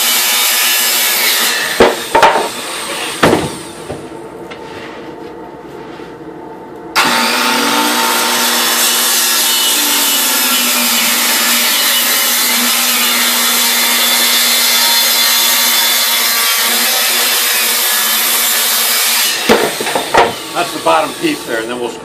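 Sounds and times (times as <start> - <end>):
circular saw cutting wood: 7.0 - 21.9.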